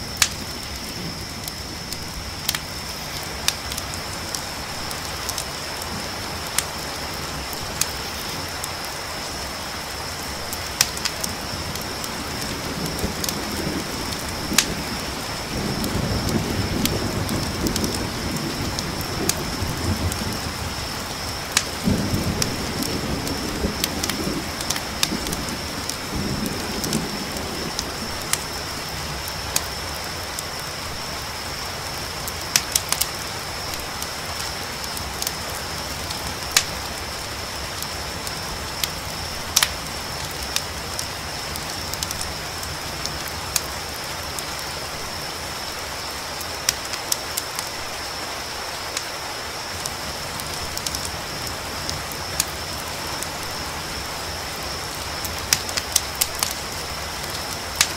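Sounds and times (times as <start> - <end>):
campfire crackling and popping: 0.0 - 57.9
crickets chirping: 0.0 - 57.9
rain falling: 0.0 - 57.9
thunder rumbling: 10.4 - 29.4.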